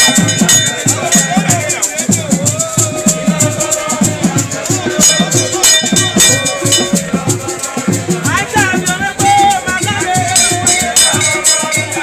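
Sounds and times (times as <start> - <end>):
drums beating fast rhythm: 0.0 - 12.0.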